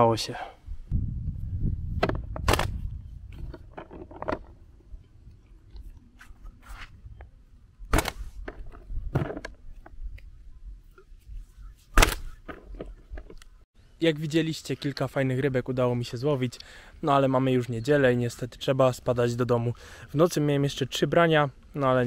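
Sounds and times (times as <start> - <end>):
wind rumble on microphone: 0.6 - 13.4.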